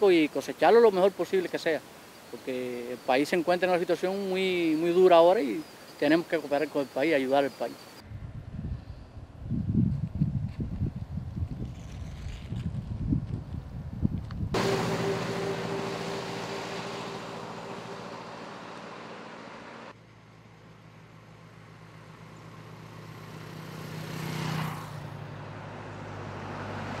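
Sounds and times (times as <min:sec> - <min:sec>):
vehicle passing: 0:14.6 - 0:20.0, 0:21.8 - 0:27.0
vehicle engine running: 0:14.6 - 0:25.8.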